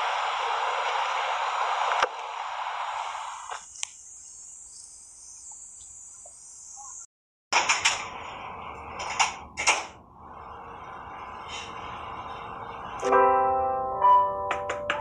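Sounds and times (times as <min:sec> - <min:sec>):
broad hiss: 0:00.0 - 0:07.0
insects chirring: 0:03.6 - 0:07.1.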